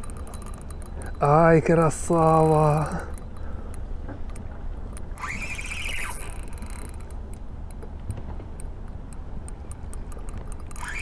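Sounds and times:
light reel clicks: 0.0s - 11.0s
fishing reel drag squealing: 5.1s - 7.1s, 10.5s - 11.0s.

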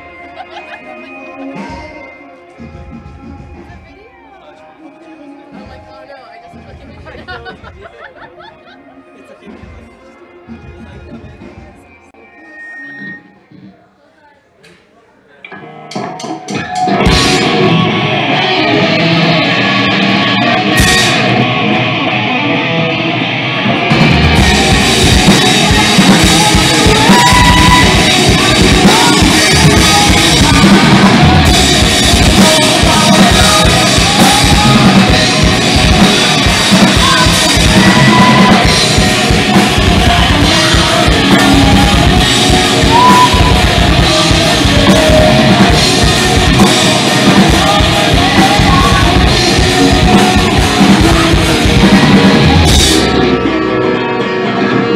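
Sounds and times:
distorted electric guitars: 0.0s - 3.9s, 15.4s - 54.9s
drum kit: 0.0s - 4.0s, 15.5s - 54.9s.

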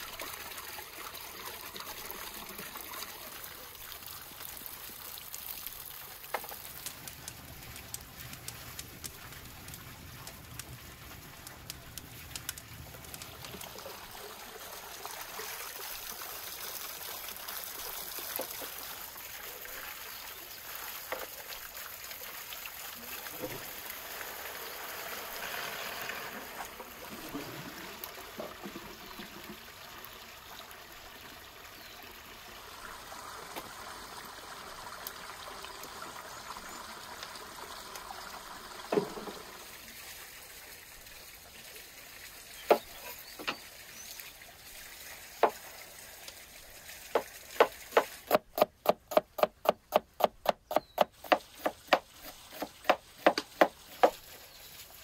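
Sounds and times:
fountain water splashing into basin: 0.0s - 55.0s
cleaver chopping on wooden board: 47.2s - 54.2s.

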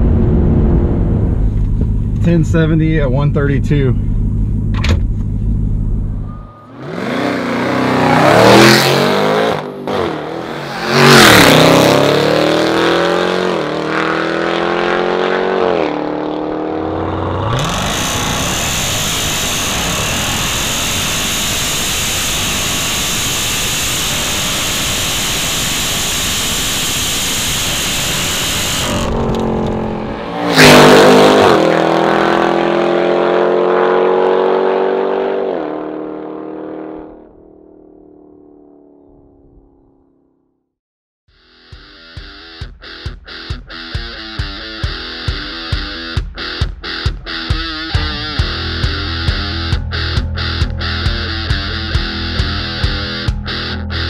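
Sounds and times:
high engine whine: 0.0s - 34.9s
engine revving at full throttle: 6.7s - 37.2s.

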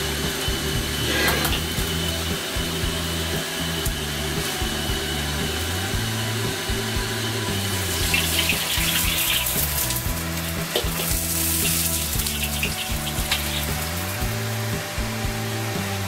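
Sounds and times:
wok burner roaring: 0.0s - 16.0s
liquid sizzling in hot wok: 7.2s - 14.8s.

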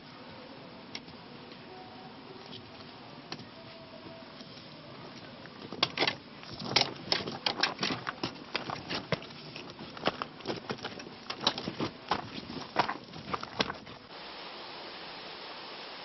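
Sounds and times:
faint hiss: 0.0s - 6.8s, 11.9s - 16.0s
footsteps on gravel: 6.5s - 14.1s.

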